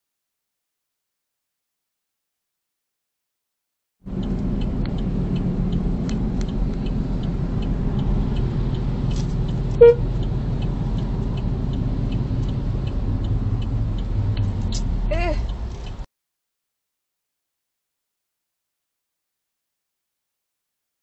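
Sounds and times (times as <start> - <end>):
car engine and road rumble: 4.0 - 16.1
faint high ticks: 4.1 - 16.0
car horn toot: 9.7 - 10.2.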